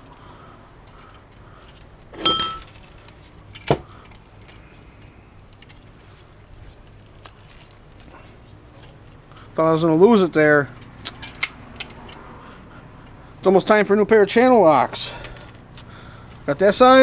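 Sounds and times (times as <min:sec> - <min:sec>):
pliers clinking on metal: 0:00.8 - 0:05.9, 0:10.6 - 0:12.2.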